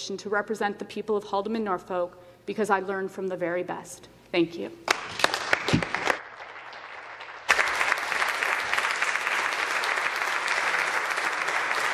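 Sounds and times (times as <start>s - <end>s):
people applauding: 4.9s - 11.9s.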